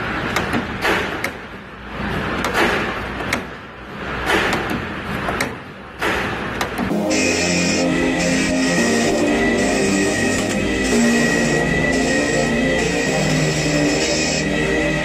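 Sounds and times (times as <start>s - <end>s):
machine noisy rush: 6.9s - 15.0s.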